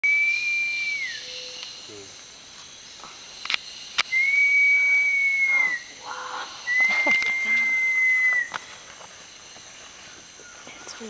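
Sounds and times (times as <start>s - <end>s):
high whistle sliding down: 0.0s - 1.5s, 4.1s - 6.0s, 6.7s - 8.6s
sharp clicks: 3.4s - 4.1s.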